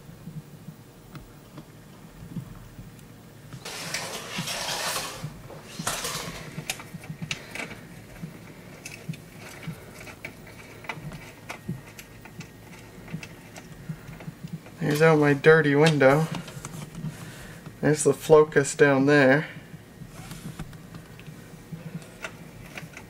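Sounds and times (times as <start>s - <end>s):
plastic blinds rustling: 3.6s - 18.1s.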